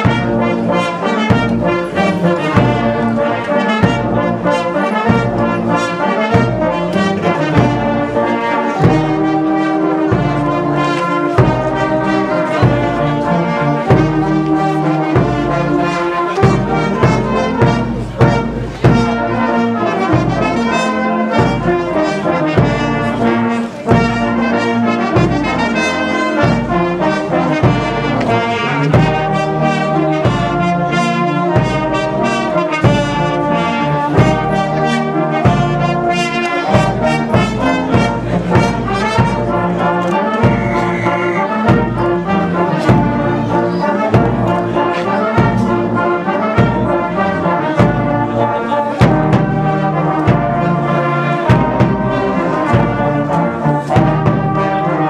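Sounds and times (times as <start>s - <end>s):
brass band playing: 0.0s - 55.0s.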